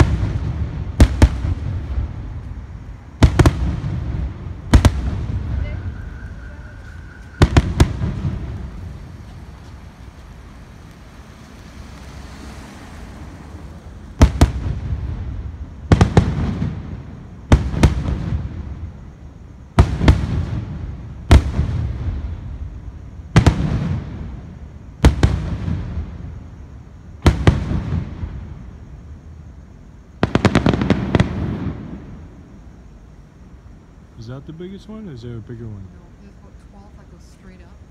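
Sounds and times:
fireworks booming: 0.0s - 11.6s, 13.2s - 33.0s
fireworks crackling: 0.0s - 32.8s, 34.2s - 37.9s.

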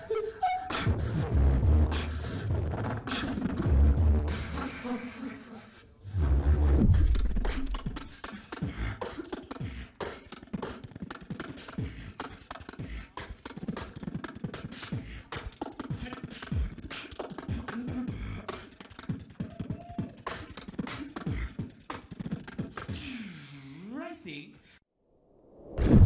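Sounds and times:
beatboxing into microphone: 0.0s - 5.4s, 6.1s - 23.7s.

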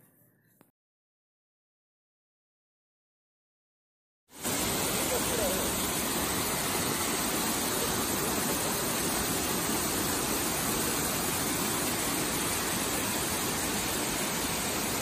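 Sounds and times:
waterfall rushing over rock: 4.4s - 15.0s.

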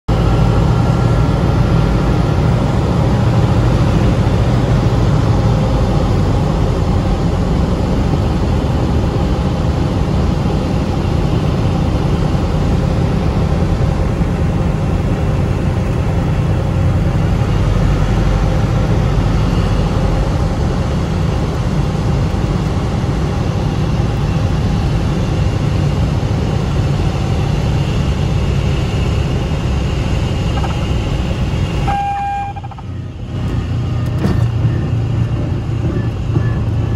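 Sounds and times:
propeller plane engine droning: 0.1s - 36.9s
short tone: 31.8s - 36.9s.

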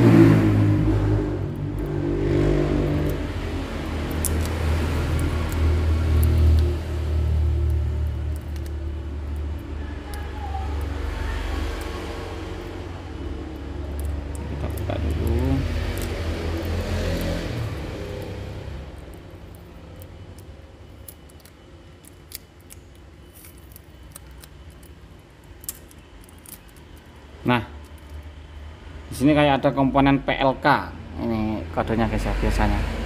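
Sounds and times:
low vehicle rumble: 0.0s - 23.3s
tape and foil crinkling: 2.7s - 28.6s.

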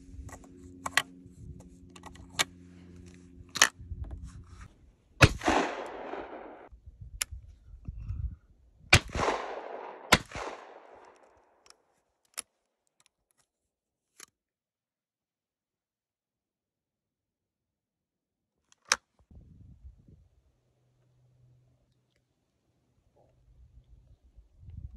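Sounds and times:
shotgun action clicking open: 3.5s - 3.8s, 18.7s - 19.1s
shotgun action snapping shut: 5.2s - 6.6s
shotgun shots with echo: 5.2s - 6.7s, 8.9s - 11.1s.

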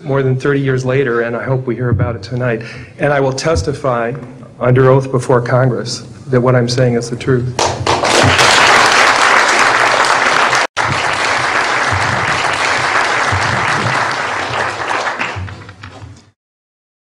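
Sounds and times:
audience applauding: 7.6s - 16.3s.

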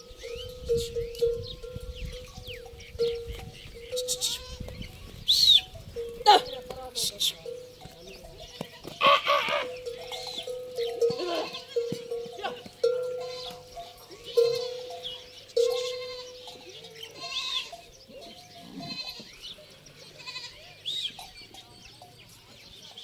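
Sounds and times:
birds chirping: 0.0s - 23.0s
goats bleating: 3.8s - 5.1s, 6.1s - 7.5s, 8.9s - 17.9s, 18.6s - 19.4s, 20.0s - 20.8s
bell clanking: 5.7s - 19.3s.

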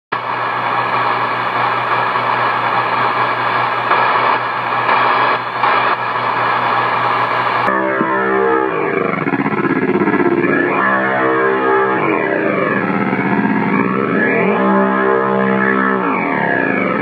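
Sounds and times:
low hum: 0.2s - 17.0s
radio static hiss: 0.2s - 17.0s
sliding pitch-bending tone: 7.7s - 17.0s.

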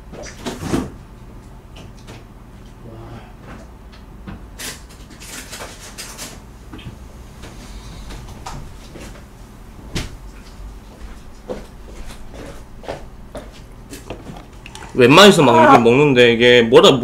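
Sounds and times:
knocks and rattles of handling: 11.4s - 15.0s.

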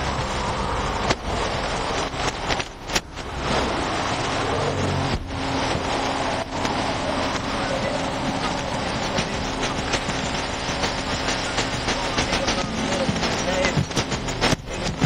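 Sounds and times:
busy highway traffic: 0.0s - 15.0s
sharp knocks and clicks: 9.1s - 15.0s.

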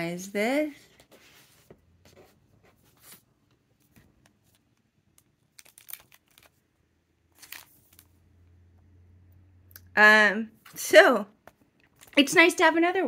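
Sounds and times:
paper notebook rustling: 0.8s - 6.6s, 7.3s - 8.2s
plastic packaging crinkling: 4.5s - 6.6s, 7.3s - 8.2s.

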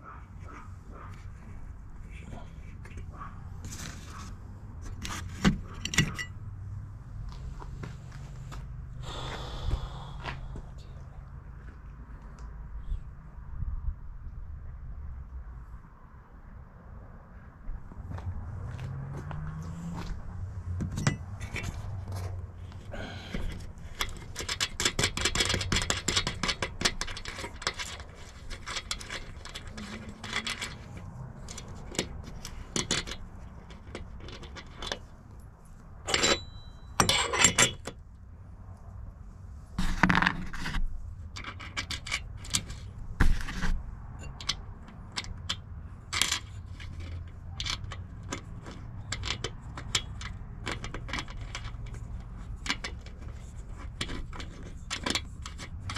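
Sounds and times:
metal clicks and scrapes of bolt: 0.3s - 6.5s, 20.8s - 38.2s, 39.8s - 55.9s.

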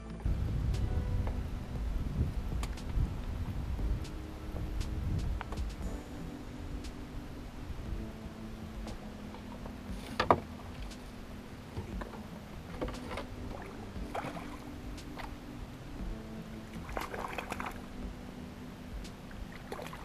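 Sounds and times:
steady low hum: 0.0s - 20.0s
gear knocking and rattling in boat: 8.8s - 11.1s, 11.7s - 15.3s.

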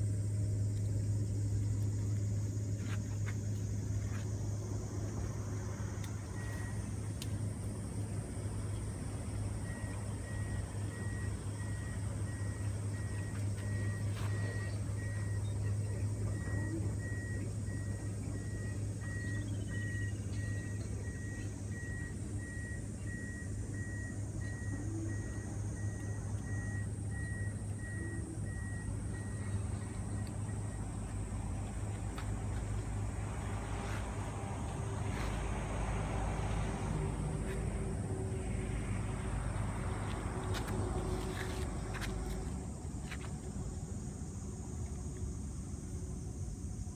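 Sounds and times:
low steady rumble: 0.0s - 46.9s
reversing beeper short beeps: 9.6s - 31.1s.

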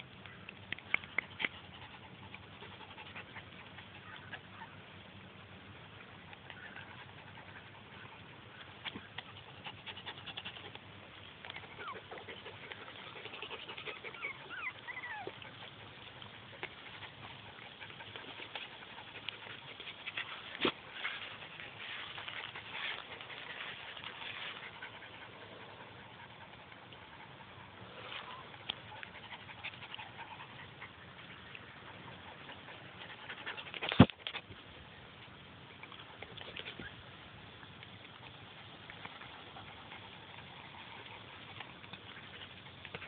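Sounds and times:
puppies whimpering and squeaking: 1.1s - 4.9s, 6.3s - 34.4s
dogs rustling through grass: 1.7s - 43.0s.

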